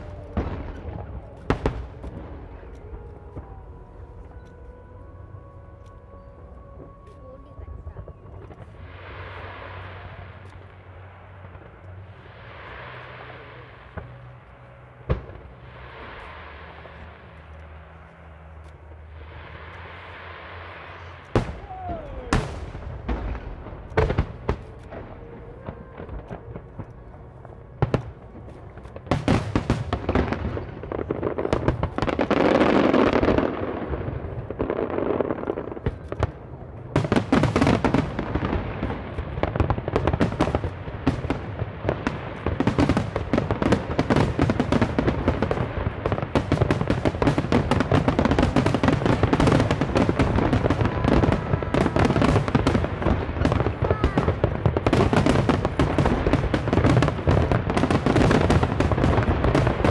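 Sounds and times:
fireworks bangs: 0.0s - 4.3s, 6.8s - 59.9s
fireworks crackling: 0.0s - 59.9s.

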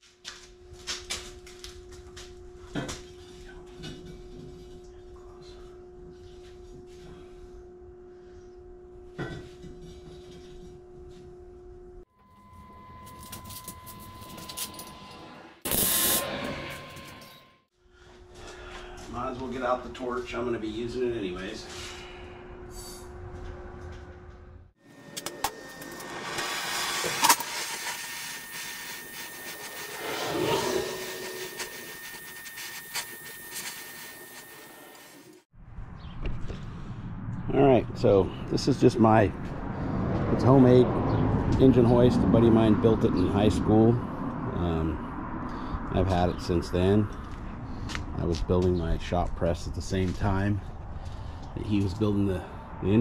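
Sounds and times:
shop hum: 0.0s - 36.0s
arc welder crackling: 15.6s - 17.3s, 25.1s - 35.4s
hiss of cutting torch flame: 15.7s - 16.5s, 25.9s - 35.4s.

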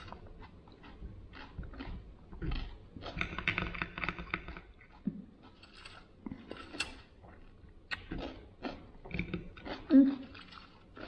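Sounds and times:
chewing crisp vegetables: 0.0s - 11.0s.

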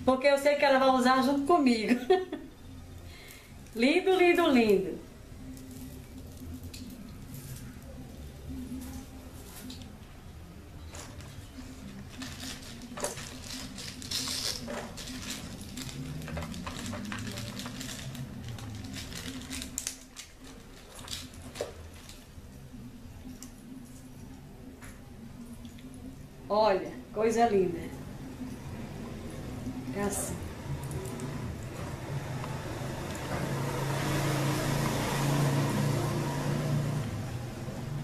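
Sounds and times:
low background hum: 0.0s - 34.1s
plastic wrapping crinkling: 10.8s - 22.5s
vehicle engine passing: 27.9s - 38.0s.

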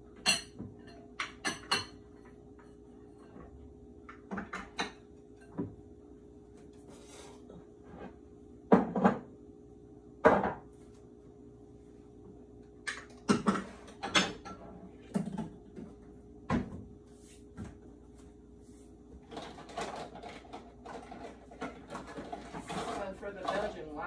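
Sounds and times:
dishes clattering on shelves: 0.2s - 2.4s, 3.2s - 5.8s, 8.7s - 9.3s, 10.3s - 10.7s, 12.8s - 15.9s.

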